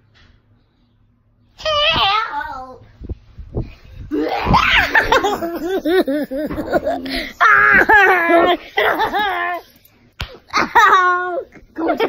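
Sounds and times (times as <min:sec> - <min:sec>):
children laughing: 0:04.1 - 0:09.7, 0:10.5 - 0:12.0.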